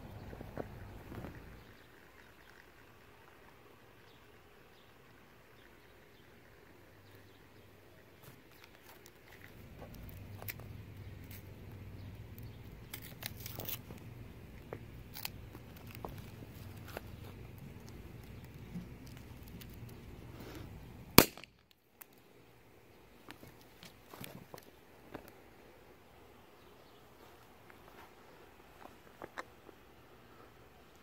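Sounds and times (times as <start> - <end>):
low steady hum: 0.0 - 31.0
party popper bang: 21.2 - 21.5.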